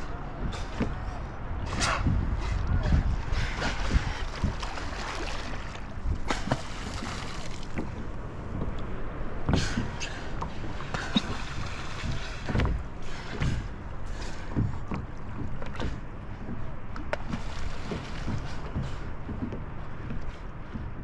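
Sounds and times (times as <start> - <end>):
water splashing against kayak hull: 0.0 - 21.0
wind on microphone: 0.0 - 21.0.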